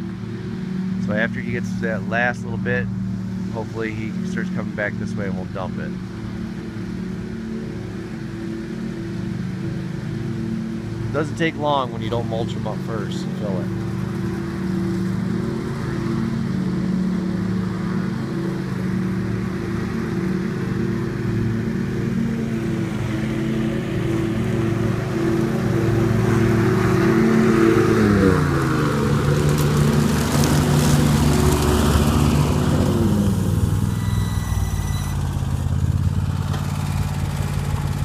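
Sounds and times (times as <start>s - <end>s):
mower engine running: 0.0s - 38.0s
leaf blower rush: 10.7s - 38.0s.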